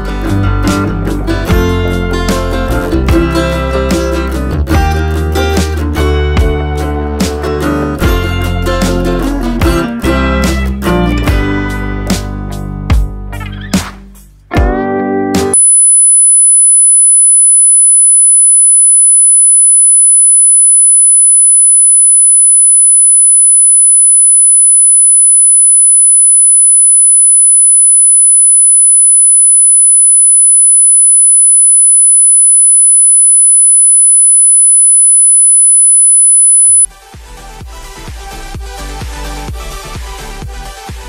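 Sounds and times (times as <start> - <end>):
high-pitched buzzer tone: 15.6 - 36.9.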